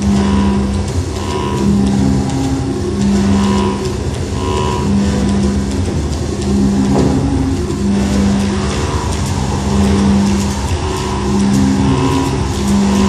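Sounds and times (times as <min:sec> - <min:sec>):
dense rumble: 0:00.0 - 0:13.0
held higher synth tones: 0:00.0 - 0:13.0
low synthesizer drone: 0:00.0 - 0:13.0.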